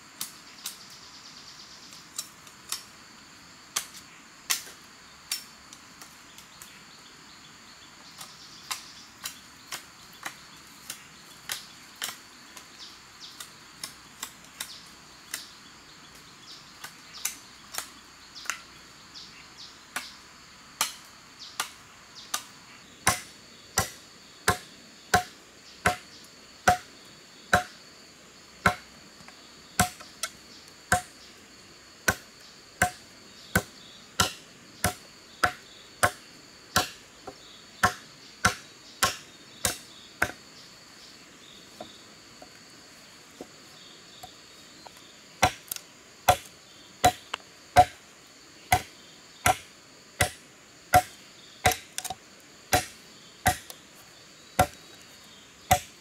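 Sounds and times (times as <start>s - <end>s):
high insect drone: 0.0s - 56.0s
machete chopping wood: 20.8s - 26.9s, 27.5s - 27.8s, 28.6s - 28.9s, 29.8s - 31.1s, 32.1s - 37.0s, 37.8s - 40.4s, 45.4s - 48.0s, 48.7s - 53.8s, 54.6s - 54.8s, 55.7s - 56.0s.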